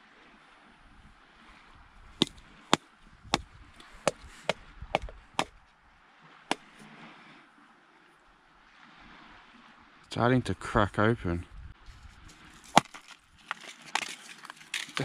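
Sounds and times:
plastic capsule knocked against rock: 5.0s - 5.5s, 12.7s - 13.2s.

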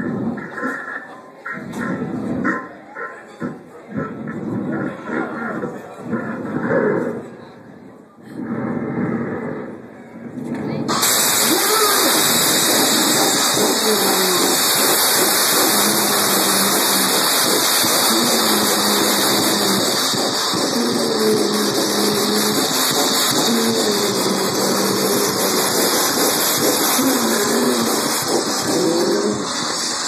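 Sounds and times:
distorted electronic noise: 0.0s - 2.6s, 10.8s - 30.0s.

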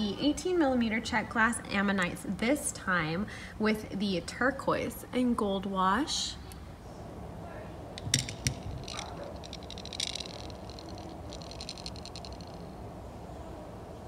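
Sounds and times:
glass beads rattling in plastic box: 8.0s - 12.7s.

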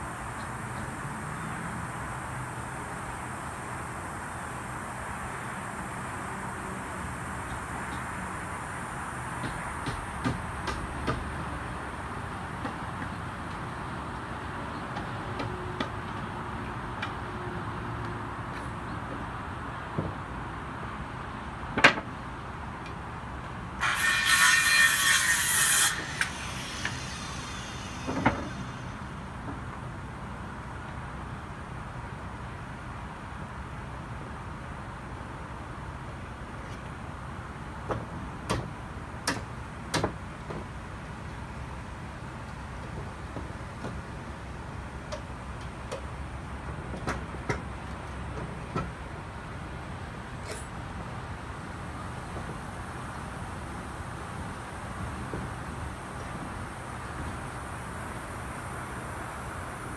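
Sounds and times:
power saw cutting wood: 23.8s - 29.1s.

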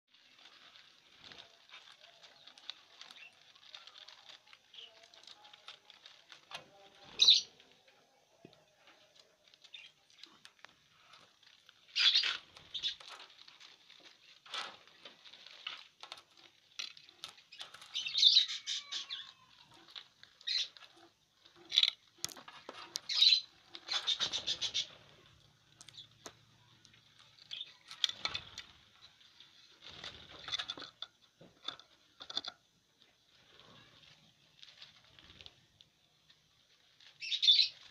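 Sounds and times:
dry corn husks rustling: 0.1s - 37.9s
birds chirping and chattering: 0.2s - 32.5s, 37.0s - 37.9s
wings fluttering: 9.6s - 21.1s, 21.7s - 26.4s, 27.2s - 30.9s.

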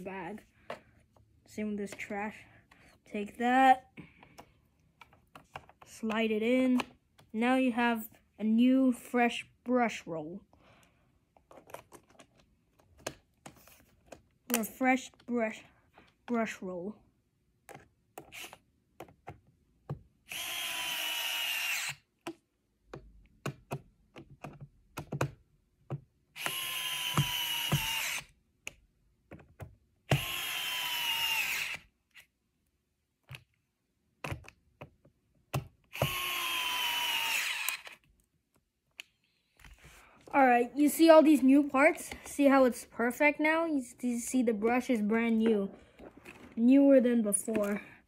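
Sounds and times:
electric screwdriver motor whine: 20.3s - 22.0s, 26.4s - 28.3s, 30.1s - 31.9s, 35.9s - 38.0s
handling clicks and taps: 22.2s - 26.1s.

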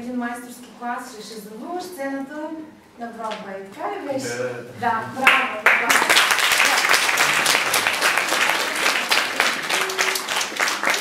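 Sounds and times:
audience applauding: 5.2s - 11.0s.

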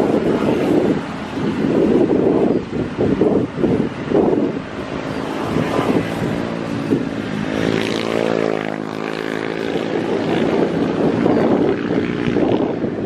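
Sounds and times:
engine droning past: 5.0s - 12.8s.

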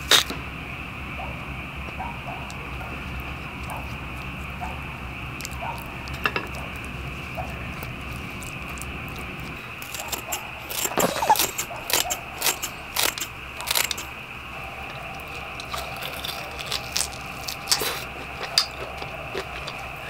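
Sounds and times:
steady low hum: 0.0s - 20.0s
scissors snipping: 7.4s - 14.1s.

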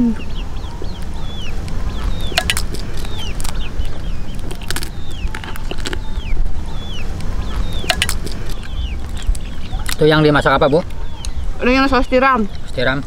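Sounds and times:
bird chirping: 0.0s - 13.0s
crunchy chewing: 1.0s - 6.4s, 7.2s - 11.4s.

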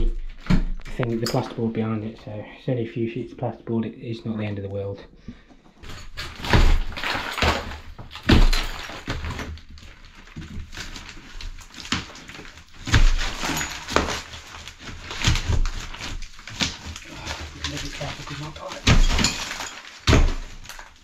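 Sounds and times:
crumbling and scraping: 5.7s - 21.0s
boards cracking and thudding: 5.8s - 21.0s.

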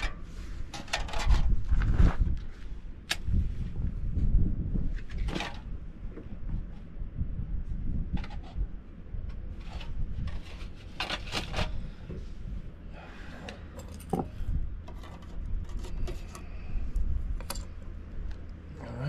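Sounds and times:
metal stove parts scraping: 0.0s - 1.7s, 9.5s - 12.0s
wind buffeting microphone: 0.0s - 12.8s, 14.3s - 18.3s.

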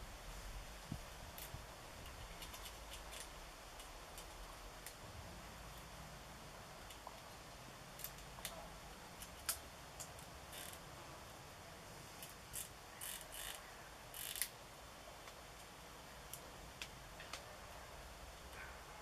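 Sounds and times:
squirrel gnawing nut shell: 0.8s - 5.1s, 6.8s - 10.8s.

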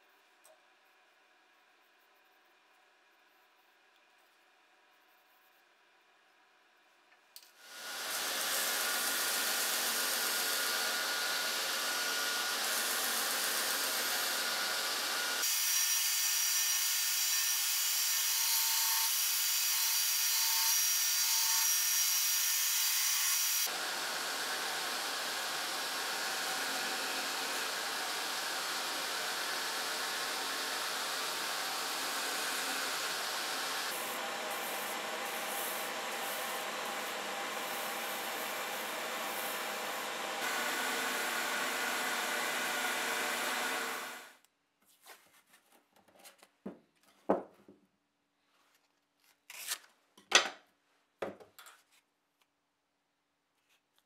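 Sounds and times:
bandsaw cutting wood: 7.6s - 17.6s, 22.8s - 44.4s.

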